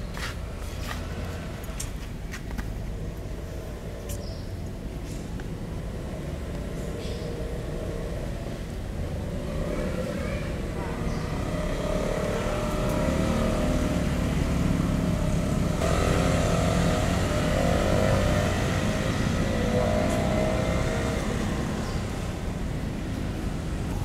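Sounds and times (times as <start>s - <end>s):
motor engine running: 10.5s - 24.0s.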